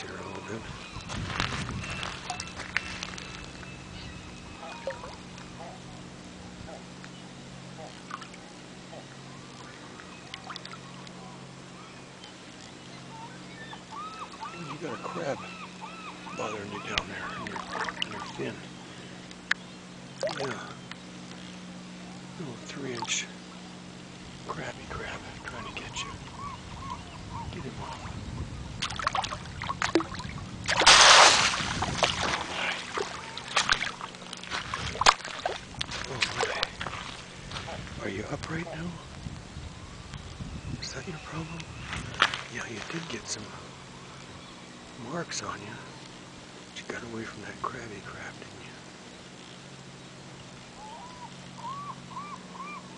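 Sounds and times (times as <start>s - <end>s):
water lapping over gravel: 0.0s - 3.7s, 7.7s - 11.2s, 16.4s - 19.6s, 20.2s - 20.8s, 28.8s - 39.2s
low hum: 0.0s - 52.9s
water dripping: 10.0s - 11.2s.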